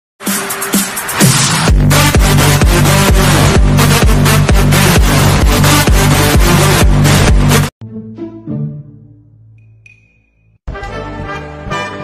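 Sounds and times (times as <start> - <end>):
loud music cue: 0.2 - 9.2
background music: 0.2 - 12.0.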